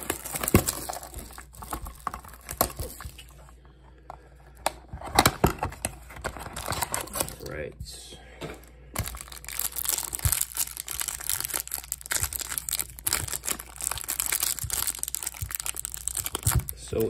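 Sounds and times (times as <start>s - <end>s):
plastic wrap crinkling: 0.0s - 3.5s, 9.0s - 17.0s.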